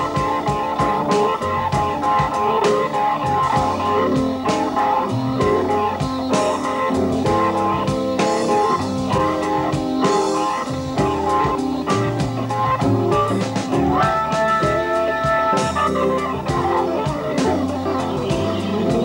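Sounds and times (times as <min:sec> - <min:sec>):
electric guitar lines: 0:00.0 - 0:19.0
organ chords: 0:00.0 - 0:19.0
slow steady drum beat: 0:00.0 - 0:19.0
low bass line: 0:03.2 - 0:09.7.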